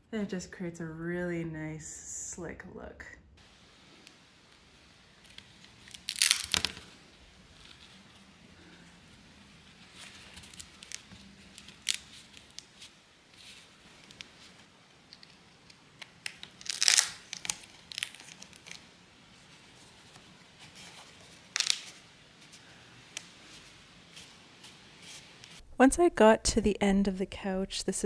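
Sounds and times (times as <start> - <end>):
fabric rustling and scraping: 3.8 - 15.4, 18.3 - 25.6.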